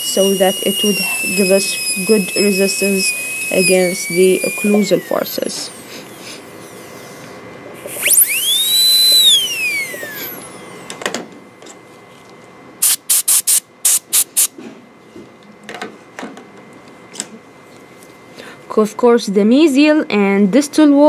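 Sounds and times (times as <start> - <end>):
sharp hissing bursts: 0.0 - 6.5, 12.8 - 14.5
dental drill whining: 0.0 - 7.2, 7.8 - 11.0, 12.8 - 14.5.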